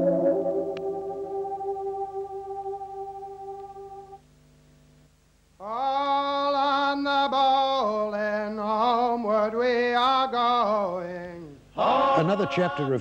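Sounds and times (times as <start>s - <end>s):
ambient synthesizer chord: 0.0s - 4.2s
person singing unaccompanied: 5.6s - 13.0s.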